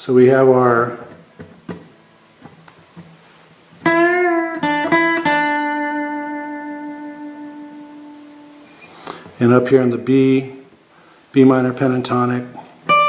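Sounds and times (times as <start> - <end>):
acoustic guitar picked lick: 3.8 - 9.4, 12.5 - 13.0.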